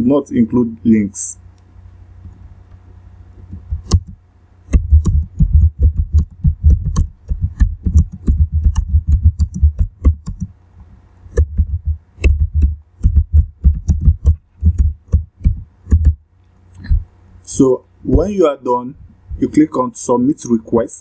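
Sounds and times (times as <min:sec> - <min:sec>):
typing on computer keyboard: 0:03.7 - 0:10.5, 0:11.4 - 0:16.2.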